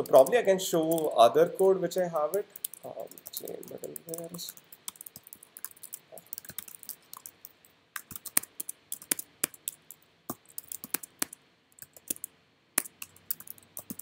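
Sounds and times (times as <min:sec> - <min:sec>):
typing on computer keyboard: 0:00.0 - 0:01.2, 0:02.3 - 0:14.0.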